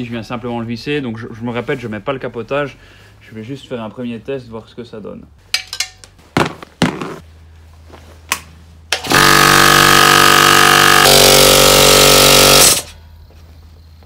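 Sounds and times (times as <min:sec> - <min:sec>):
piston air compressor running: 0:08.9 - 0:13.0.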